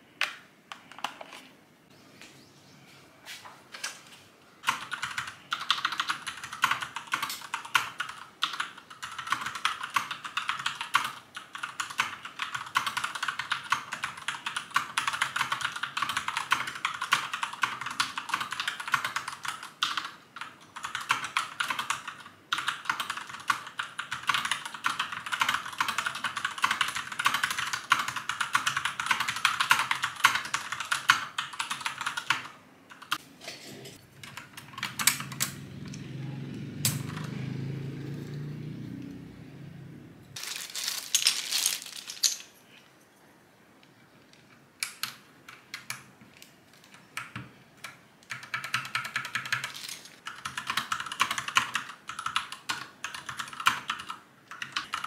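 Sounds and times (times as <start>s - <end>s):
keyboard typing: 4.6s - 33.2s, 34.1s - 36.0s, 46.8s - 55.0s.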